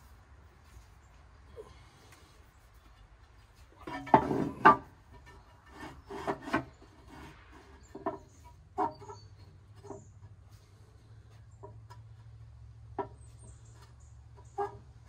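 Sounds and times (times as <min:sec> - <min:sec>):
ceramic clunks and scrapes: 0:03.8 - 0:09.2.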